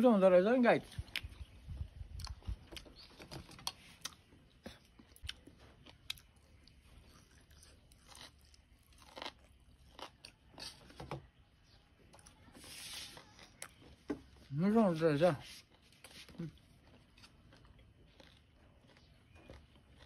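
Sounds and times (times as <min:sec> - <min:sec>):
person chewing food: 0:02.0 - 0:11.0, 0:15.6 - 0:20.0.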